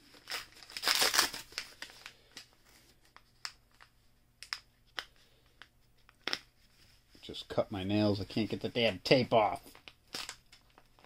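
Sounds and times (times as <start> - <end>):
paper wrapping crinkling: 0.0 - 6.6, 8.4 - 11.0.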